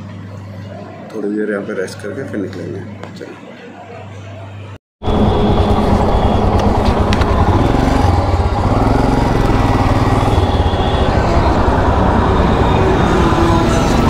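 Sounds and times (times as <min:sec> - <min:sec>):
motorcycle engine running: 0:05.0 - 0:14.0.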